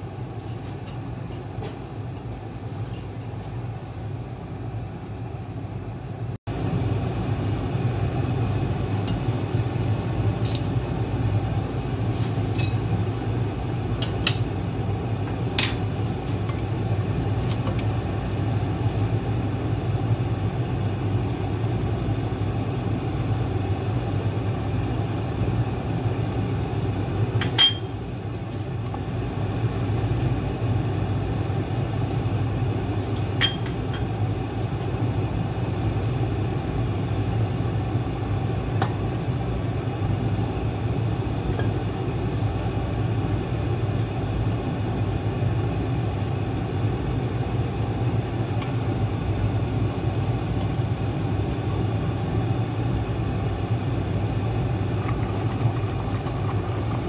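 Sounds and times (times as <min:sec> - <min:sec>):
pot boiling: 0:06.7 - 0:46.5, 0:54.1 - 0:57.0.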